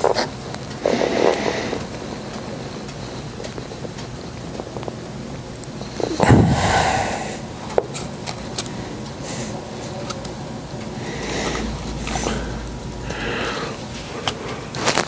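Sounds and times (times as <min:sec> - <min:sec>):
gas torch flame burning: 0:00.0 - 0:15.0.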